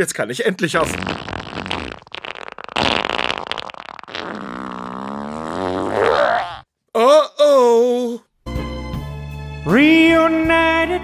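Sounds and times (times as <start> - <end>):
cartoon fart: 0.8 - 6.7.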